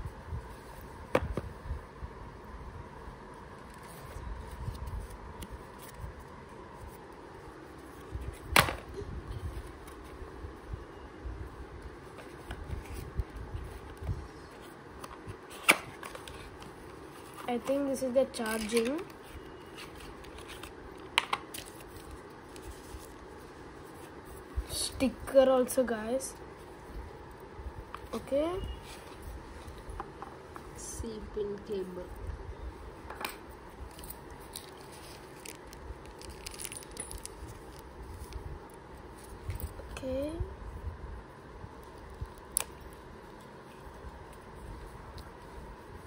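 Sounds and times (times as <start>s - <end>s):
packaging rustling: 33.8s - 38.4s.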